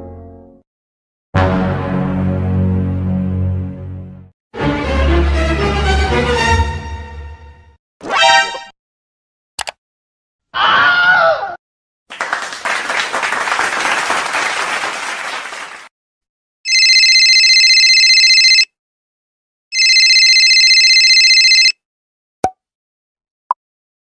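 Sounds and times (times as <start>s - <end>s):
person screaming: 10.5s - 11.6s
telephone bell ringing: 16.7s - 18.7s, 19.7s - 21.8s.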